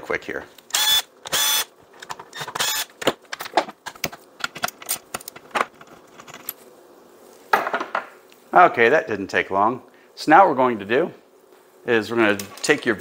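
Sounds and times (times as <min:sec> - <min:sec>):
cordless drill whirring: 0:00.7 - 0:01.7, 0:02.3 - 0:02.9
screws and plastic parts rattling: 0:00.8 - 0:06.6.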